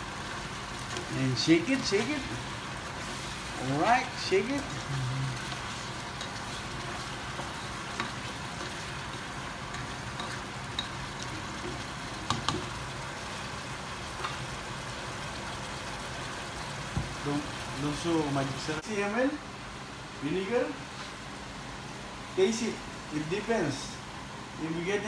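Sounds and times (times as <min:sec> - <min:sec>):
chicken sizzling in a pot: 0:00.0 - 0:18.9.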